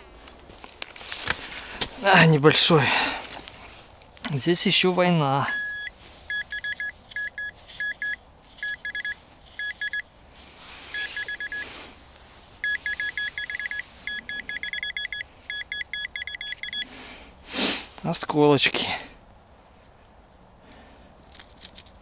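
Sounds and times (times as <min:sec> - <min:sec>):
metal detector beeping: 0:05.4 - 0:10.1, 0:10.9 - 0:11.7, 0:12.6 - 0:16.9
brief rustle: 0:21.2 - 0:22.0.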